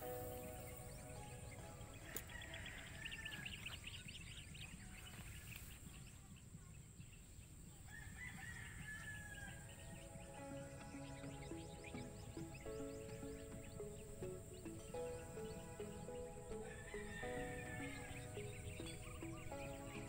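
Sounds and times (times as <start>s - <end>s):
background music: 0.0s - 3.7s, 8.5s - 20.0s
distant rooster crowing: 1.4s - 4.1s, 7.9s - 11.4s, 15.0s - 20.0s.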